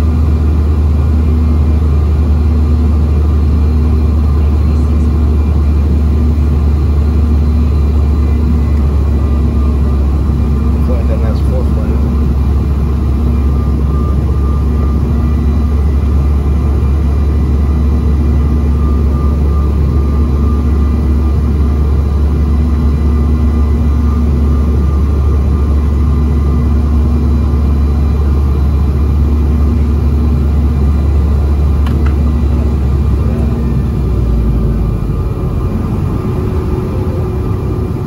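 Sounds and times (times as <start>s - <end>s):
low rumble of airflow and engines: 0.0s - 38.0s
whining turbofan tones: 0.0s - 38.0s.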